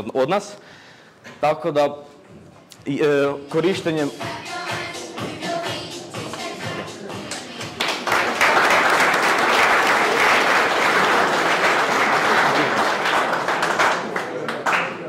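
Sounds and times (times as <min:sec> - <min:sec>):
audience applauding: 0:07.3 - 0:15.0.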